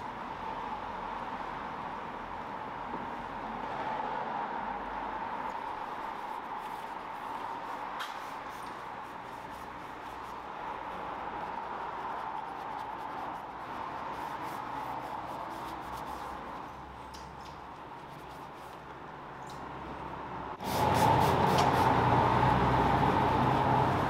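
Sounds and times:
scrubbing foam on plastic: 5.6 - 19.3.

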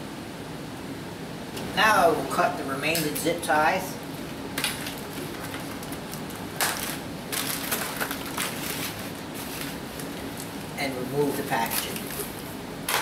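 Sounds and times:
plastic wrap rustling and crinkling: 4.2 - 13.0.

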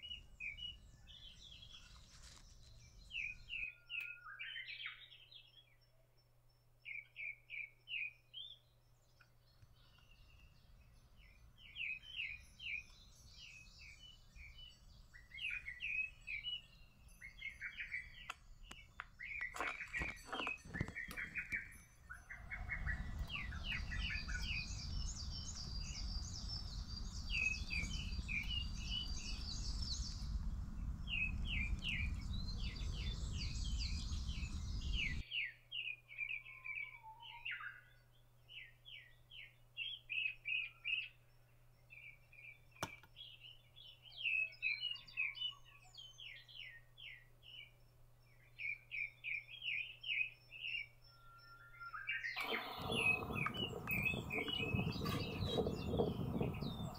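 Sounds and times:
songbirds singing and calling: 0.0 - 56.9
low rumble: 22.4 - 35.2, 52.4 - 56.9.

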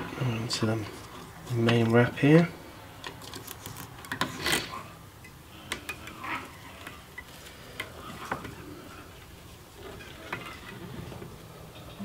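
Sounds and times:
thread wrapping clicks and rustling: 3.0 - 4.7.

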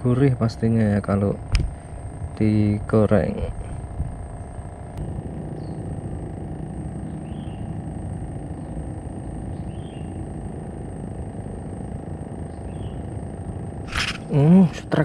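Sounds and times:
wind rumble on microphone: 1.4 - 2.6, 3.2 - 4.9
faint bird chirps: 5.5 - 5.9, 7.0 - 10.4, 12.3 - 14.5.

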